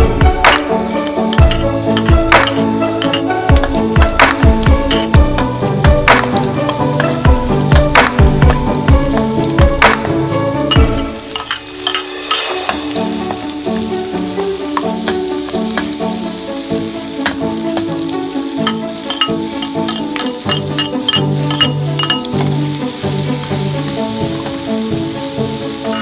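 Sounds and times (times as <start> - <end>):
low music beat: 0.0 - 11.3
background music: 0.0 - 26.0
food sizzling in hot oil: 0.0 - 26.0
metal ladle scraping a wok: 0.4 - 9.6, 10.6 - 16.4, 18.5 - 23.0, 25.8 - 26.0.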